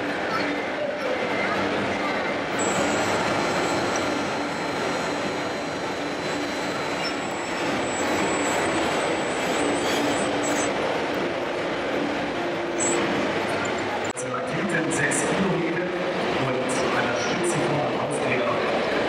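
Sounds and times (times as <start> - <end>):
high whine of hydraulic pump: 0.0 - 14.1
crowd murmur in a hall: 0.0 - 19.0.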